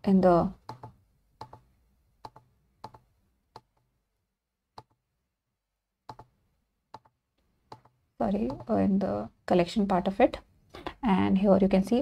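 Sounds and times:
computer mouse clicking: 0.6 - 3.8, 4.8 - 5.0, 6.1 - 6.3, 6.9 - 8.8.

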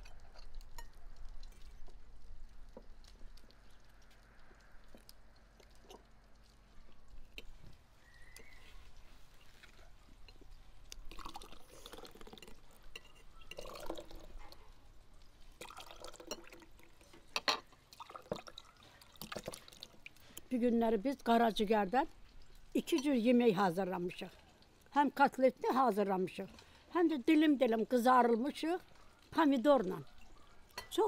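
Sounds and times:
drink pouring into glasses: 11.1 - 14.4, 15.6 - 20.2.

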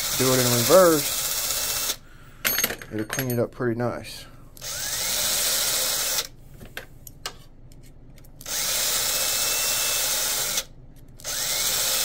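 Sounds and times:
power drill whining: 0.0 - 2.0, 4.6 - 6.3, 8.4 - 12.0.

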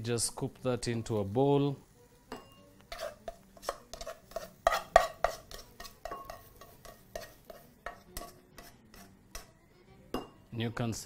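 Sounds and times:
utensil scraping a pan: 2.8 - 9.6.

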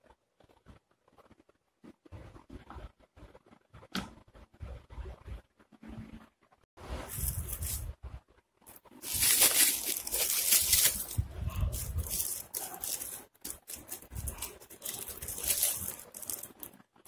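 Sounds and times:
foil wrapping crinkling: 7.1 - 7.9, 8.7 - 16.8.

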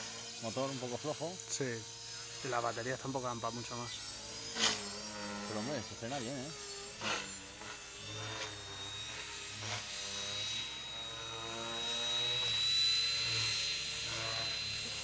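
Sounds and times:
rc helicopter motor whine: 0.0 - 15.0.

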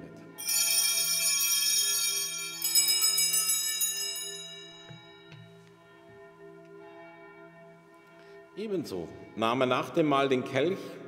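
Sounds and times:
altar bells jangling: 0.4 - 6.0
low bell tone humming: 0.4 - 6.3.

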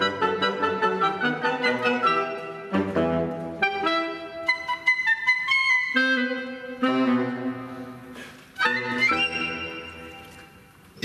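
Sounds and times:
woodwind ensemble playing: 0.0 - 10.5.

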